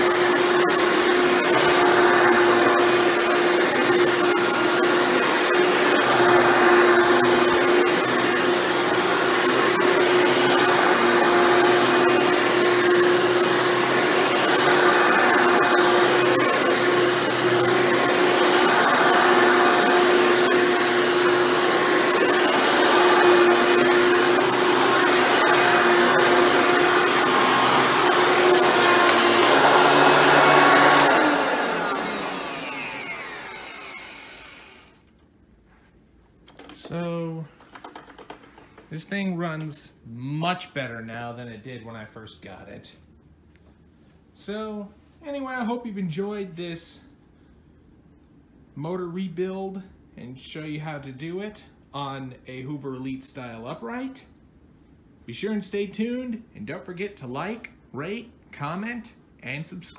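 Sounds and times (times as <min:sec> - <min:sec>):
vacuum cleaner running: 0:00.0 - 0:35.1.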